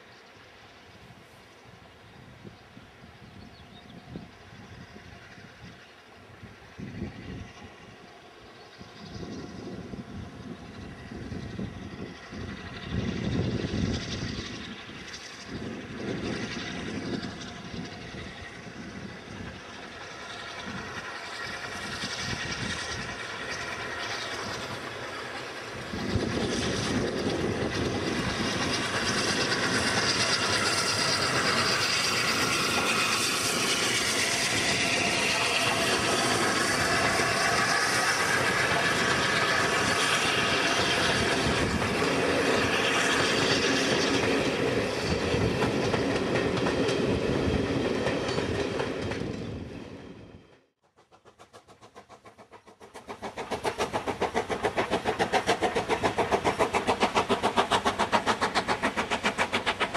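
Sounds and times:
steam train passing: 0.0s - 59.9s
wind on microphone: 8.8s - 19.6s, 25.8s - 50.3s.

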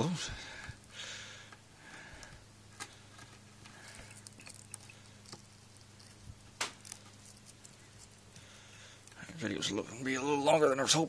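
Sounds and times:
knife scraping cable sheathing: 2.8s - 9.4s.

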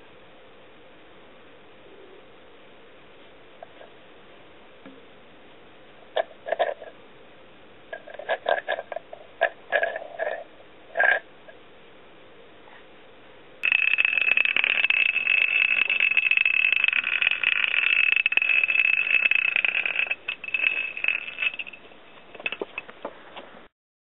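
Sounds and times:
spinning top rattling: 13.6s - 22.9s
spinning top whirring: 13.6s - 22.9s.

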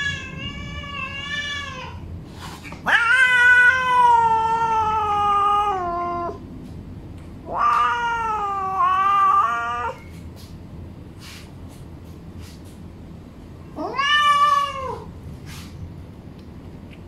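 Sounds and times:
cat meowing: 0.0s - 2.0s, 2.8s - 6.4s, 7.4s - 10.1s, 13.7s - 15.1s.

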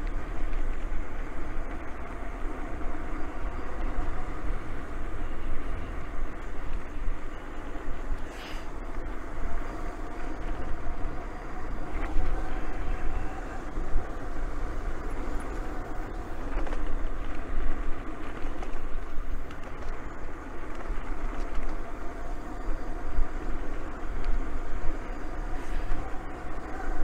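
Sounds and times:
faint steady whine: 0.0s - 27.0s
wind rumbling on microphone: 0.0s - 27.0s
tyre hiss: 8.2s - 8.8s.

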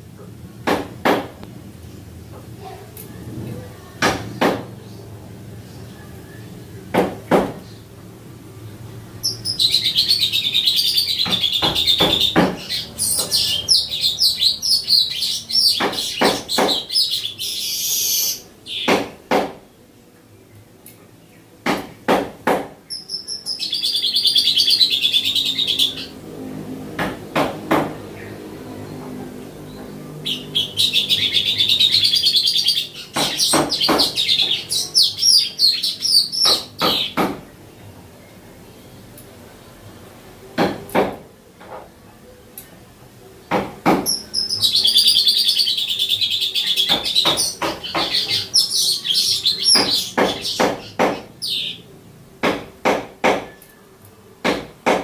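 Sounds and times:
bird singing buzzy chattering song: 7.6s - 19.0s, 22.8s - 26.3s, 28.0s - 39.4s, 44.0s - 51.9s.

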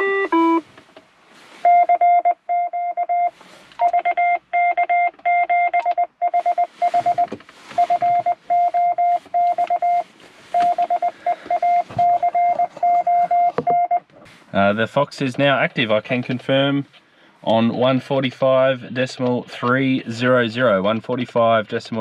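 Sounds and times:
morse code beeping tone: 0.0s - 0.6s, 1.6s - 14.0s.

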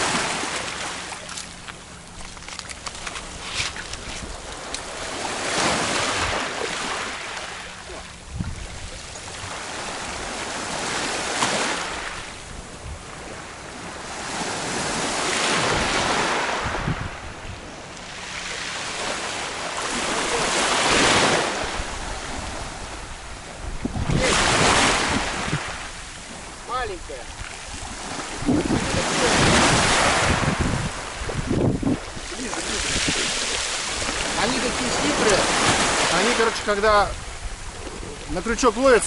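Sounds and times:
sea waves washing onto shore: 0.0s - 39.0s.

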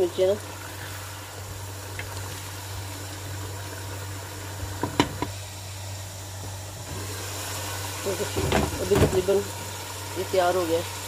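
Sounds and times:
curry simmering hiss: 0.0s - 11.0s
gas stove low hum: 0.0s - 11.0s.

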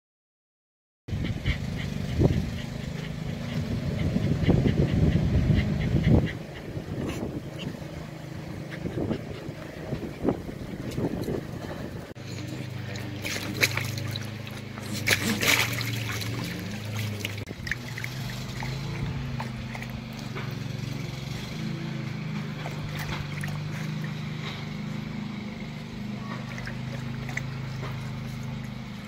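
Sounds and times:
steady low hum: 1.1s - 29.0s
dog splashing in water: 12.2s - 25.3s, 26.2s - 29.0s.

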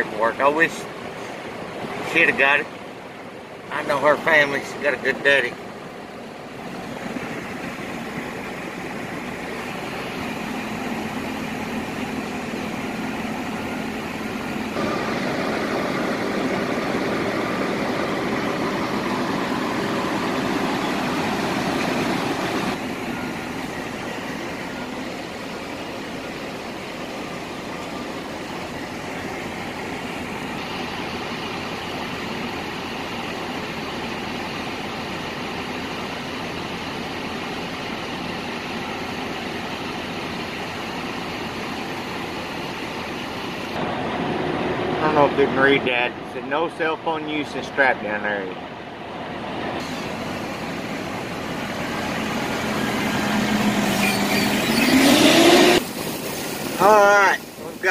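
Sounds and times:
diesel truck engine running: 0.0s - 57.9s.

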